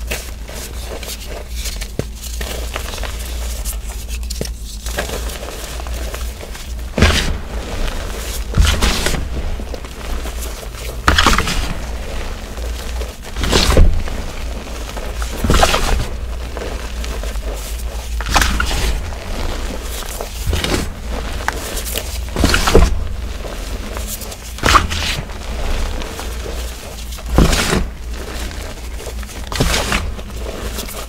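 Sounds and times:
chalk crunching: 0.0 - 31.0
low rumble: 4.9 - 30.8.

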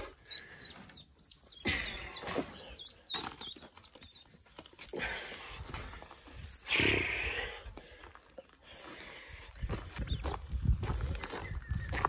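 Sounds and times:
ducklings peeping: 0.0 - 4.7.

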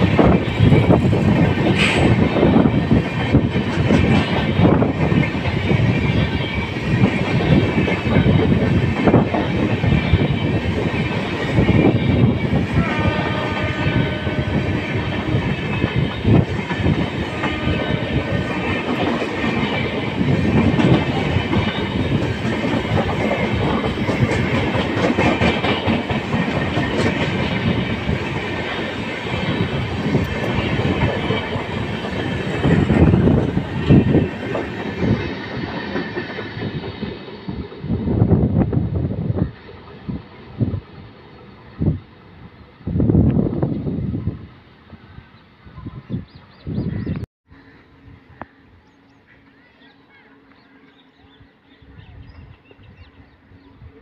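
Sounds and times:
train wheels rumbling on rails: 0.0 - 54.0
wheels clickety-clack: 2.9 - 5.9, 18.6 - 37.8.

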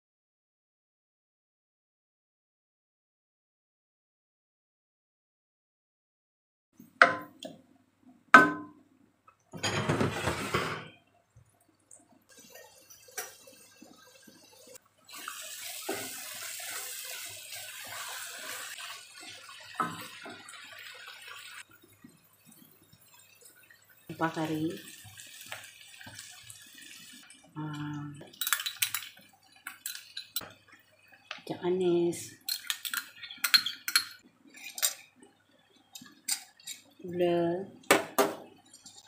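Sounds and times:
wooden spatula knocking pan: 7.0 - 7.6, 8.4 - 8.8
stirring noise: 9.3 - 37.0
chili paste sizzling in oil: 12.3 - 37.0.

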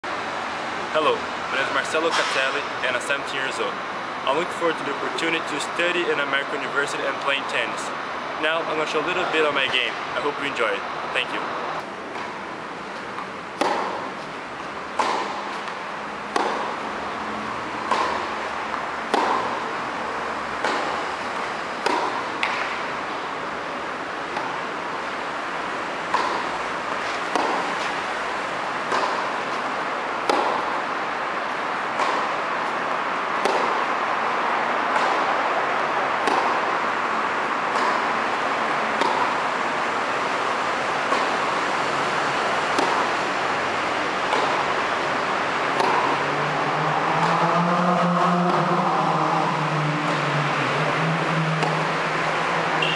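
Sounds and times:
tennis ball hit by racquets: 11.2 - 47.4, 50.1 - 52.9.

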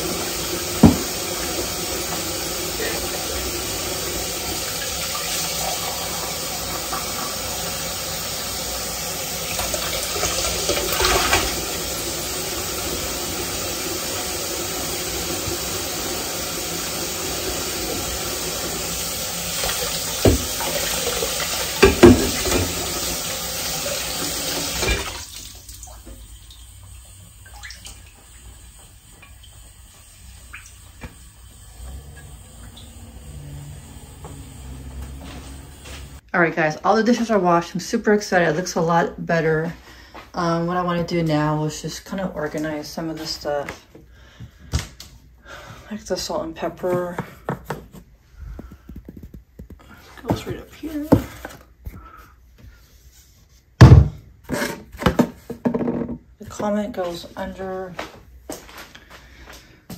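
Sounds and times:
faucet running into sink: 0.0 - 36.2.

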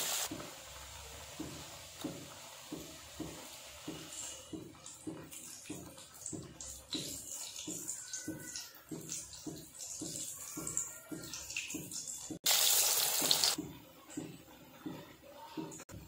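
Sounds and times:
sudden loud hiss: 0.0 - 0.3.

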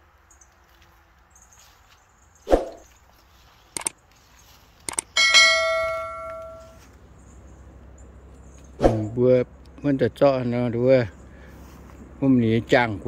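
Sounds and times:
mouse clicks: 4.9 - 5.1
notification bell ringing: 5.1 - 6.8.

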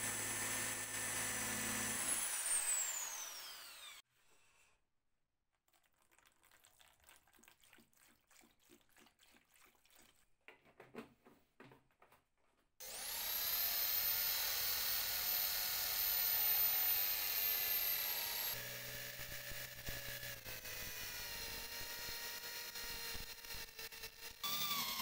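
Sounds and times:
electric drill whining: 0.0 - 4.0, 12.8 - 25.0
liquid gurgling and splashing: 5.7 - 10.3.

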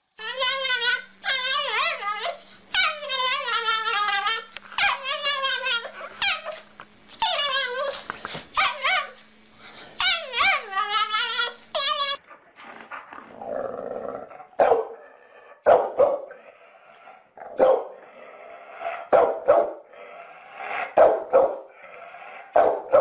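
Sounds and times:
small dog howling: 0.2 - 6.6, 7.2 - 8.0, 10.0 - 12.2.

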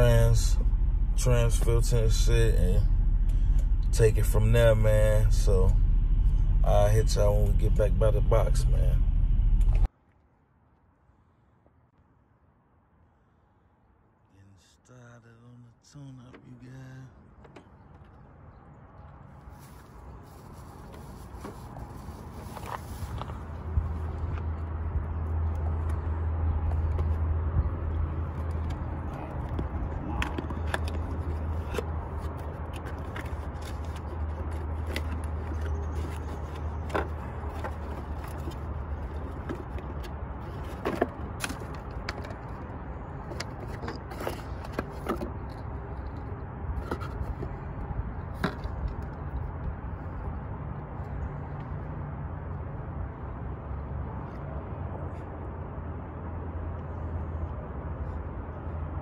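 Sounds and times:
low rumble: 0.0 - 9.9
cardboard boxes clicking and rustling: 29.4 - 42.6.

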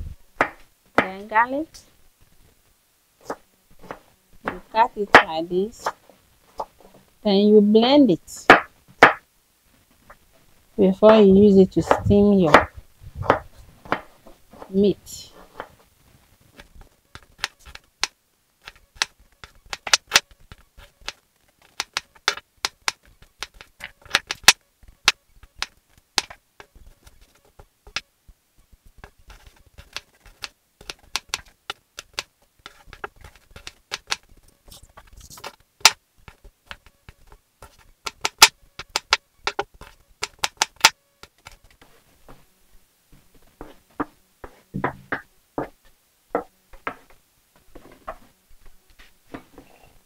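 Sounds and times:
knife chopping on wooden board: 8.5 - 9.2.

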